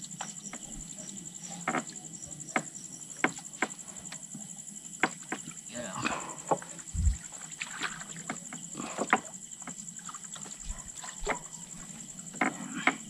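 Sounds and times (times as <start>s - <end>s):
insects chirring: 0.0s - 13.0s
low thuds: 6.9s - 7.3s.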